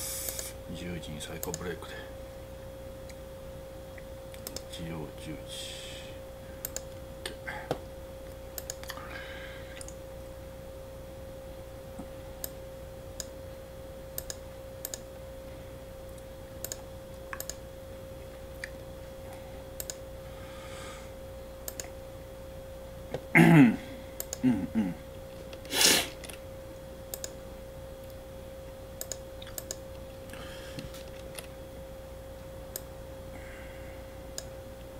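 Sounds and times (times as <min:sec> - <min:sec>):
steady hum: 0:00.0 - 0:34.9
computer mouse clicks: 0:01.4 - 0:01.7, 0:04.3 - 0:04.7, 0:06.6 - 0:07.0, 0:08.6 - 0:09.0, 0:14.2 - 0:15.0, 0:16.1 - 0:17.6, 0:19.8 - 0:20.0, 0:21.6 - 0:22.0, 0:24.2 - 0:24.4, 0:27.1 - 0:27.4, 0:29.0 - 0:29.8, 0:34.3 - 0:34.5.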